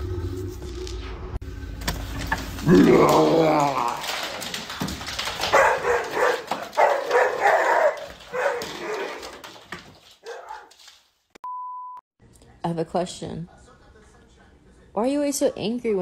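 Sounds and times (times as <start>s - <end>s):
clicks and clatter: 1.9s - 10.1s
dog barking and yelping: 5.5s - 9.4s, 10.2s - 10.8s.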